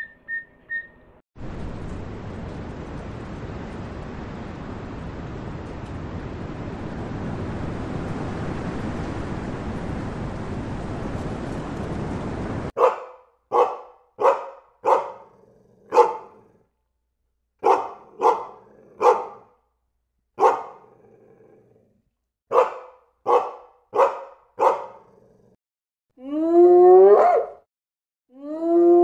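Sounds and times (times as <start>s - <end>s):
dog barking: 12.8s - 16.5s, 17.6s - 19.6s, 20.4s - 20.9s, 22.5s - 25.2s, 27.1s - 27.6s.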